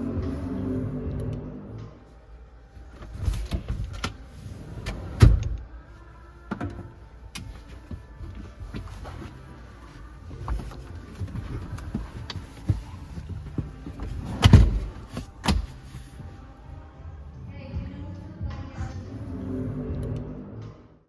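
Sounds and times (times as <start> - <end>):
knocks and clicks against seats: 6.5 - 16.1
clothes rustling: 7.4 - 16.6.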